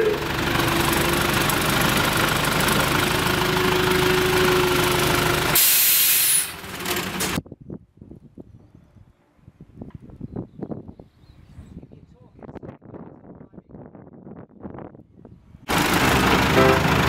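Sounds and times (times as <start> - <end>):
train running: 15.7 - 17.0.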